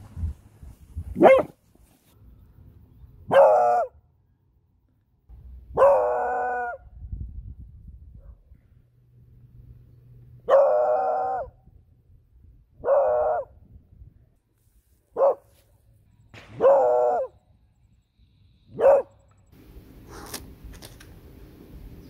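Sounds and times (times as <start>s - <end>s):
dog barking: 1.2s - 1.6s, 3.3s - 4.0s, 5.7s - 6.8s, 10.4s - 11.5s, 12.8s - 13.5s, 15.2s - 15.5s, 16.6s - 17.3s, 18.7s - 19.2s.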